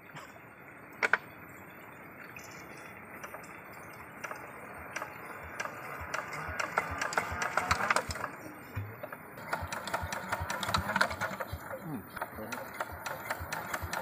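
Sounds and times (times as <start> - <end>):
steady hiss: 0.0 - 14.0
metallic clicks on engine: 3.2 - 8.4, 9.0 - 14.0.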